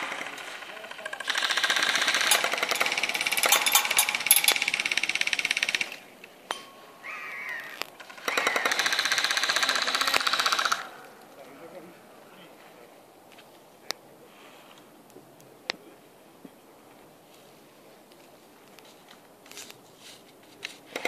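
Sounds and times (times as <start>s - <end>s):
airsoft rifle firing full auto: 0.0s - 6.0s.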